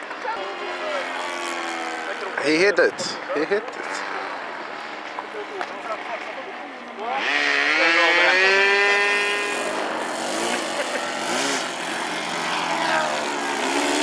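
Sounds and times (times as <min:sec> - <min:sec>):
model plane motor and propeller: 0:06.0 - 0:14.0.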